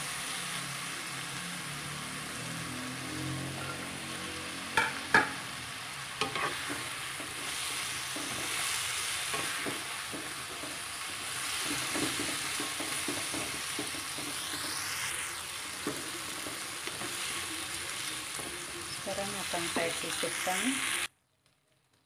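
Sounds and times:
vegetables sizzling in oil: 0.0 - 21.1
spatula scraping pan: 6.2 - 21.0.

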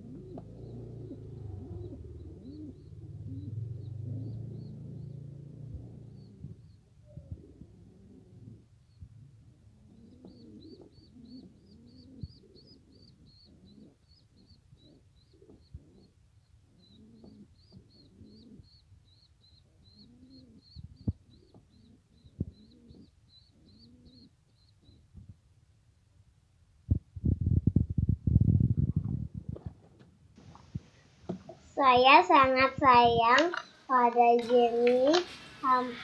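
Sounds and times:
squab peeping: 0.0 - 25.2.

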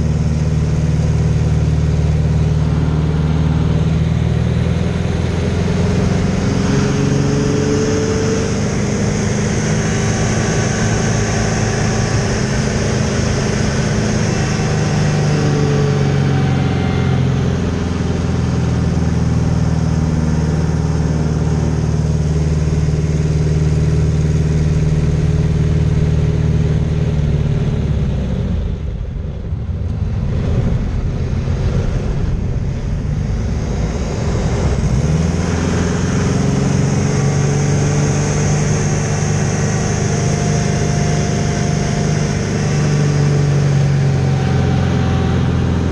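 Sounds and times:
aircraft piston engine running: 0.0 - 45.9
wind rush: 0.7 - 17.0, 28.4 - 37.7.

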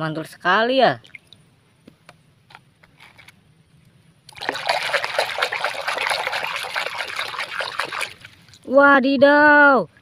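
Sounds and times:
hand sloshing water in basin: 4.3 - 8.6.

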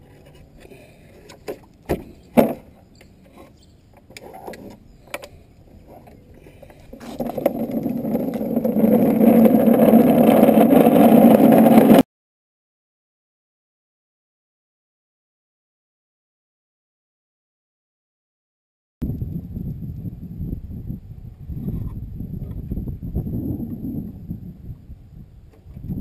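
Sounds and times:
stand rolling across asphalt: 0.0 - 12.0.

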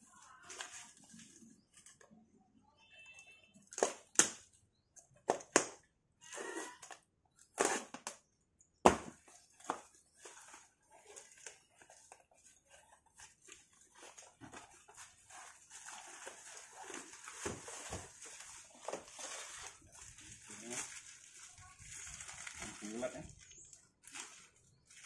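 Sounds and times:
plastic wrap crinkling: 9.4 - 25.0
scrapes and rustles: 10.0 - 25.0.

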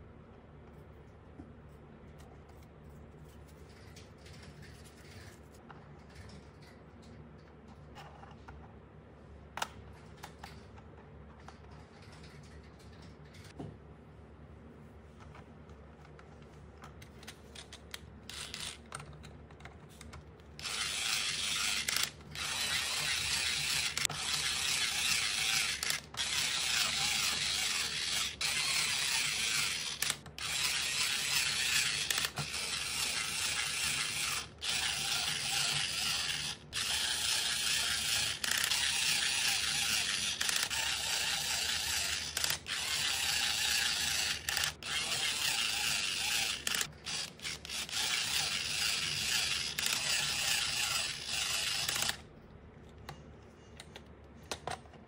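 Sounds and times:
toy mechanism ratcheting: 17.2 - 19.1, 20.6 - 52.2.

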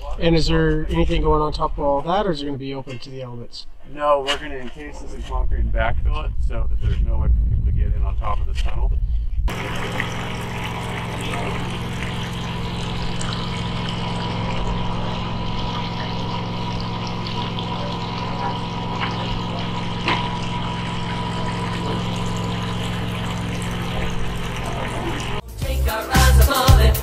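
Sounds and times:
motor droning: 9.0 - 25.4.

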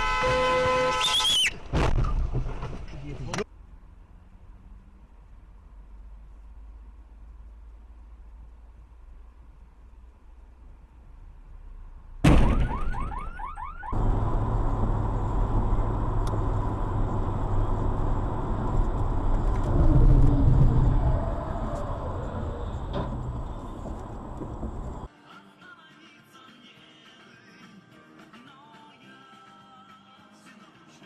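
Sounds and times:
loud impact: 12.2 - 13.3
car driving on wet road: 14.0 - 25.1.

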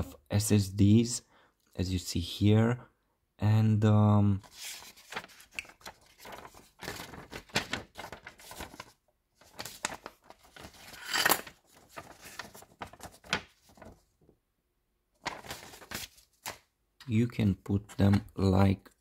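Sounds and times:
paper rustling and crinkling: 4.4 - 14.3, 15.2 - 16.7.

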